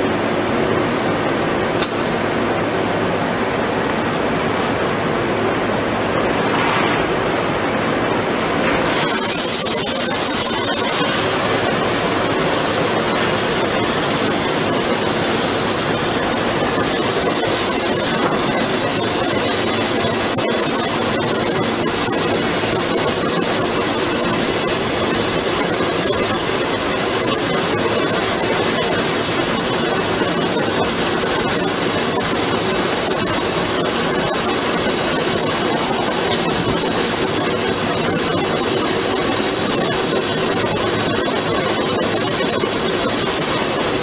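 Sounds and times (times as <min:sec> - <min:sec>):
steady machine hum: 0:00.0 - 0:44.0
machine cutting metal hiss: 0:08.8 - 0:44.0.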